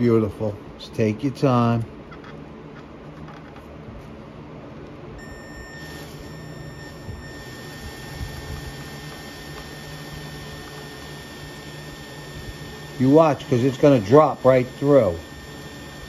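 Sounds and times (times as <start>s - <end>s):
drill motor hum: 5.2s - 16.0s
high-pitched drill whine: 5.2s - 16.0s.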